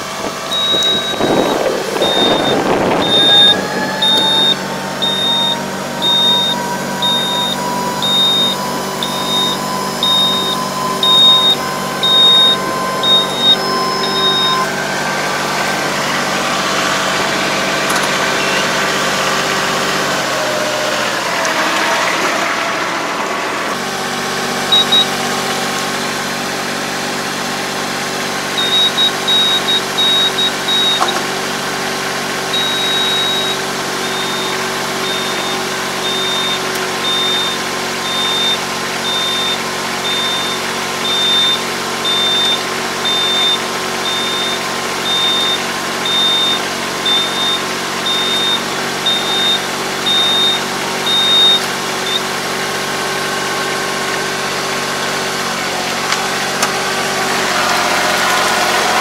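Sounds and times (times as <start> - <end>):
hydraulic harrow folding: 0.0 - 23.8, 28.6 - 31.6
tractor diesel engine idling: 0.0 - 59.0
high electronic warning beeps: 0.5 - 18.9, 24.7 - 25.2, 28.6 - 31.2, 32.5 - 52.3.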